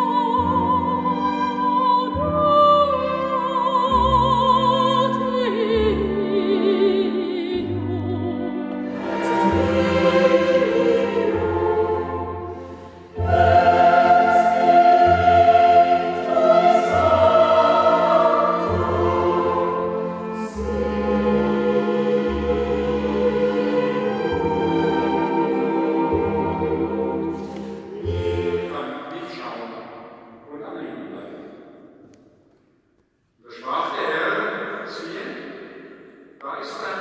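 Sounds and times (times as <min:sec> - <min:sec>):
soprano singing with vibrato: 0:00.0 - 0:29.0
choir singing: 0:00.0 - 0:29.8
string ensemble: 0:00.0 - 0:31.5.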